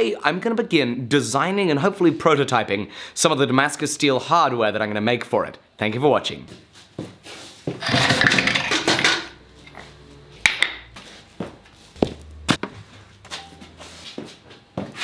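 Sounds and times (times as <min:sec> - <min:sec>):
objects rustling and scraping: 0:06.6 - 0:15.0.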